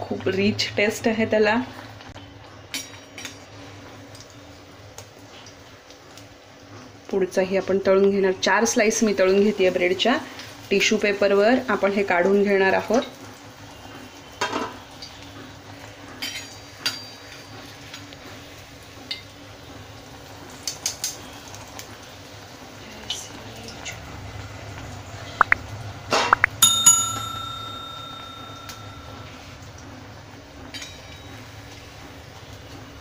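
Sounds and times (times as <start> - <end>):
ghee sizzling under frying bread: 0.0 - 33.0
utensils clinking: 26.2 - 29.4
bell ding: 26.4 - 29.4.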